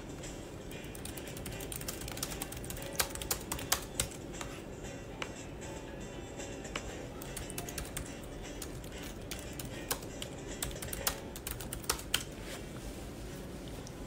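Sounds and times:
faint background music: 0.0s - 14.0s
typing clicks: 0.9s - 4.2s, 7.2s - 12.3s.

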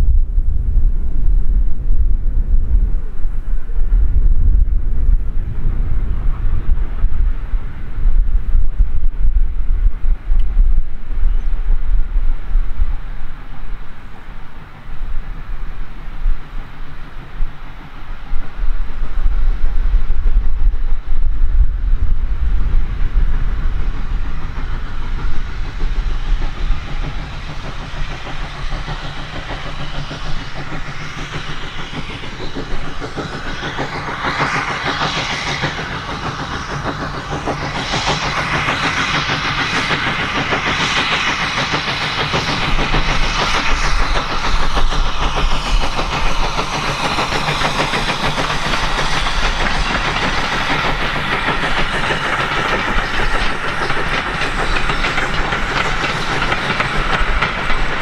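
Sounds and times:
heavy low rumble: 0.0s - 58.0s
train wheels clattering over rails: 23.2s - 58.0s.

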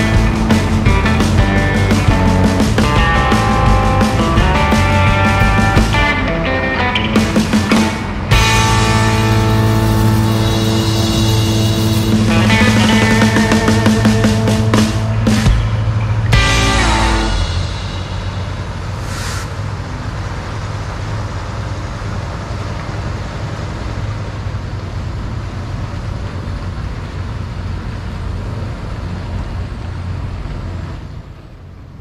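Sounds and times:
diesel engine droning: 0.0s - 32.0s
air brake hiss: 18.1s - 19.7s.

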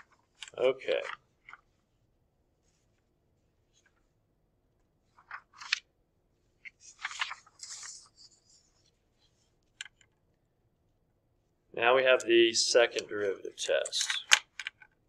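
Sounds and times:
paper rustling and crackling: 5.1s - 5.8s, 6.6s - 8.9s.

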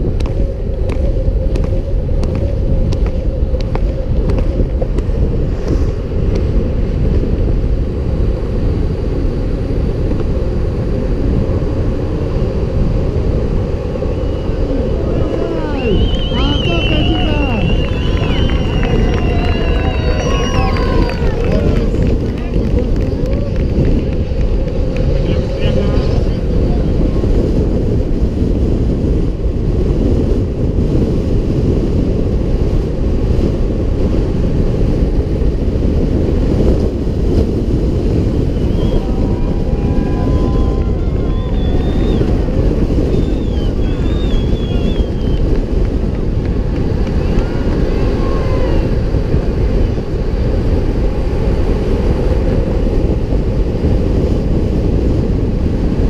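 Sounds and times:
skateboard wheels rumbling on asphalt: 0.0s - 56.0s
wind rushing over microphone: 0.0s - 56.0s
faint spectators shouting: 14.7s - 24.0s, 38.8s - 42.5s, 47.0s - 49.1s.

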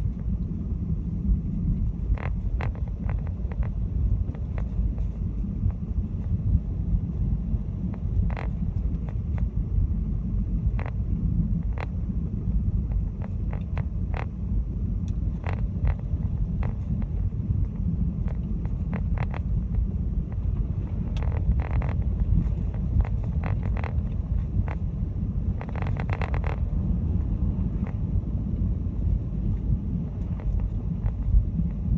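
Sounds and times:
car driving on icy road: 0.0s - 31.9s
sharp crackles: 25.6s - 26.7s.

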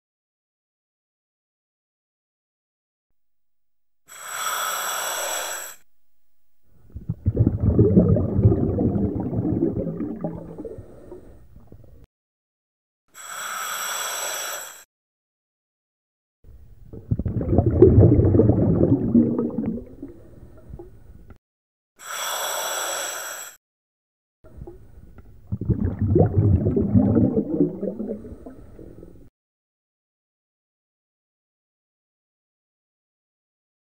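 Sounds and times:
regulator inhale hiss: 4.1s - 5.8s, 13.1s - 14.9s, 22.0s - 23.6s
exhaled bubbles burbling: 6.7s - 12.0s, 16.8s - 21.0s, 24.5s - 29.3s.

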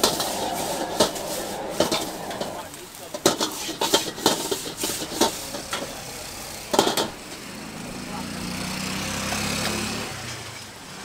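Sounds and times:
metal ladle clanking on wok: 0.0s - 6.0s, 6.7s - 7.5s
steady sizzle: 0.0s - 7.8s.

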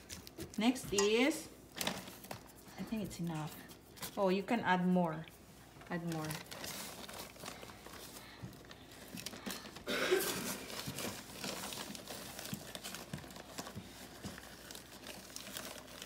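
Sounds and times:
plastic bag crinkling: 1.6s - 2.7s, 5.8s - 16.0s.

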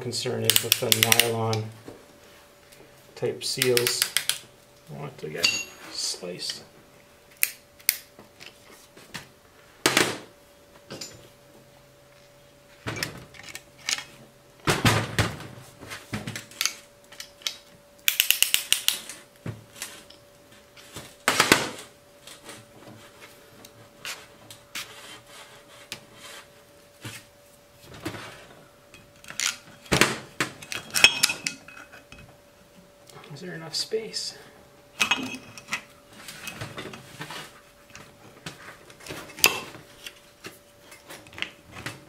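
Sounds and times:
metal parts clinking on workbench: 5.4s - 5.8s, 30.6s - 32.0s.

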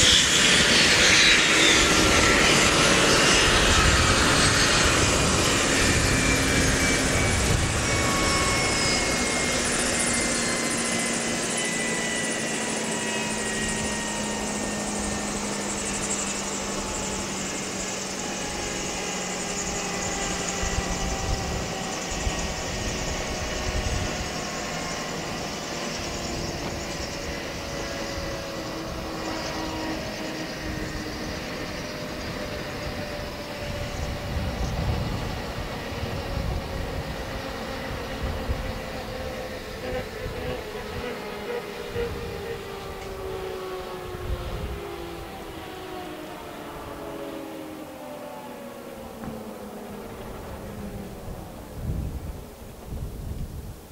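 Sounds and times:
helicopter engines and rotors winding down: 0.0s - 53.9s.

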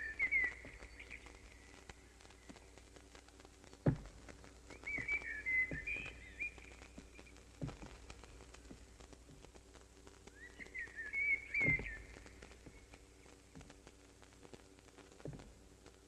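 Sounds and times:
dull thump: 3.8s - 4.2s
warbling bird-like whistles: 4.7s - 6.8s, 10.4s - 12.2s.

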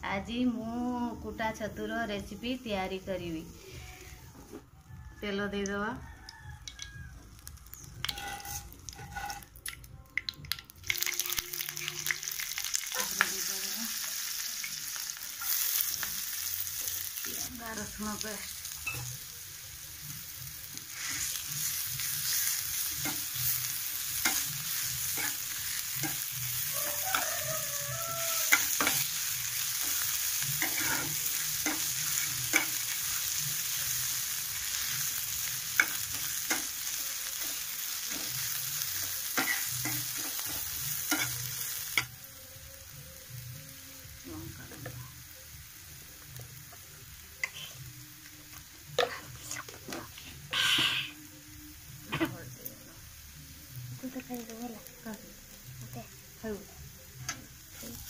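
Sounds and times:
food sizzling in oil: 0.2s - 58.0s
spatula stirring and scraping: 8.1s - 9.5s, 29.8s - 32.8s.

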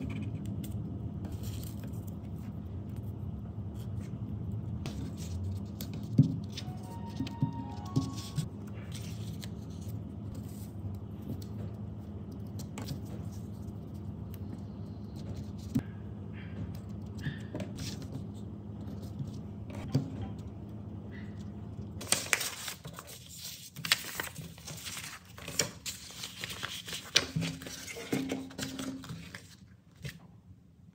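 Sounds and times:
low steady hum: 0.0s - 30.9s
plastic sheets crinkling: 22.0s - 30.2s.

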